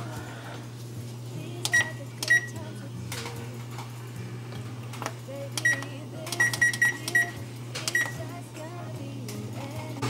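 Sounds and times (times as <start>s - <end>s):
steady low hum: 0.0s - 10.0s
oven control panel beeps: 1.6s - 2.6s, 5.6s - 8.3s.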